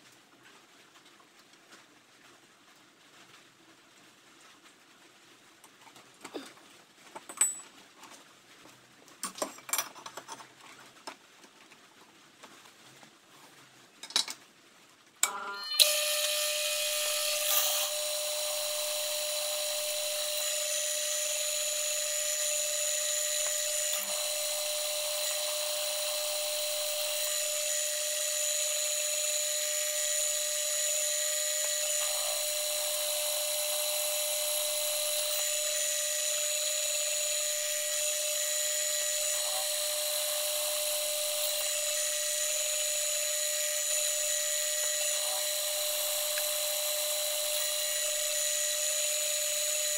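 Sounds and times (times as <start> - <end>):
drilling machine high-pitched whine: 15.2 - 49.9.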